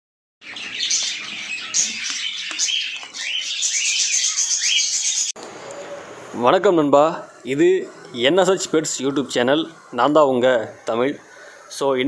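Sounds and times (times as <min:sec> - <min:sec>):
flock of small birds chirping: 0:00.4 - 0:05.9.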